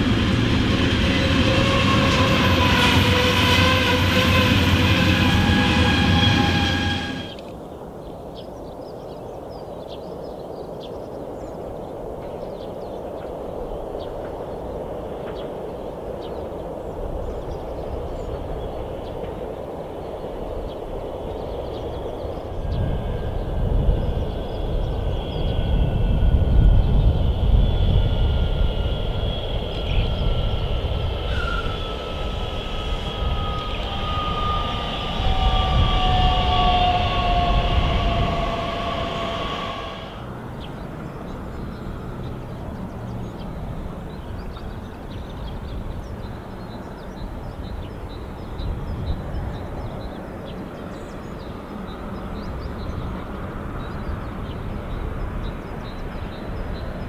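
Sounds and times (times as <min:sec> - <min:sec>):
train motor whine: 0:00.0 - 0:07.4, 0:25.3 - 0:40.3
train wheels rumbling on rail: 0:00.0 - 0:07.4, 0:12.1 - 0:57.0.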